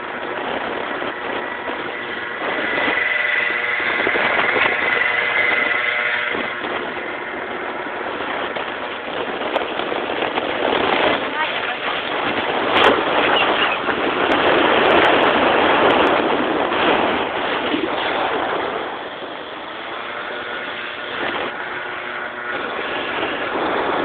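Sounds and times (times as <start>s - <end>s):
moped engine running: 0.0s - 24.0s
wind rushing over microphone: 0.0s - 24.0s.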